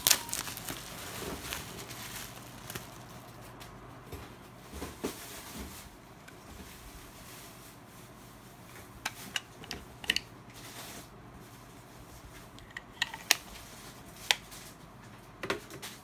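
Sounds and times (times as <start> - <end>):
handling rustle: 0.0 - 3.7.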